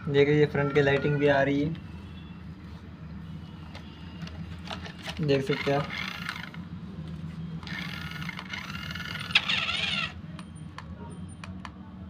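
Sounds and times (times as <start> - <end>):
toy car and remote clicking: 4.7 - 6.6, 7.6 - 10.2.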